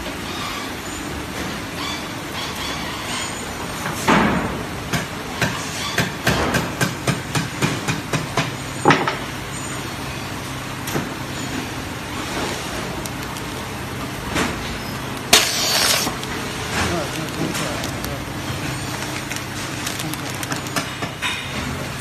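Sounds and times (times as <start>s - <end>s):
plastic bag fed into sealer: 15.3s - 21.0s.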